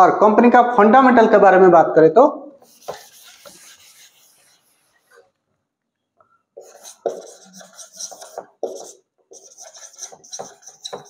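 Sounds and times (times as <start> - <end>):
marker squeaking on whiteboard: 2.6 - 5.4, 6.6 - 11.0.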